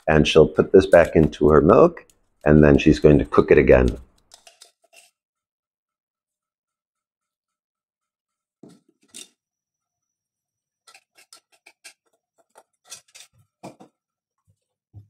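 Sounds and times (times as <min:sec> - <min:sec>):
wooden spoon scraping a metal pot: 0:00.0 - 0:05.2, 0:10.9 - 0:13.8.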